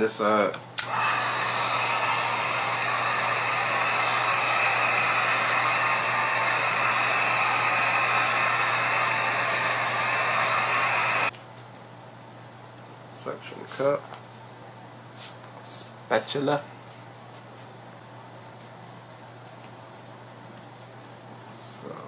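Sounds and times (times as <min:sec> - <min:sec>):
heat gun blowing air: 0:00.8 - 0:11.3.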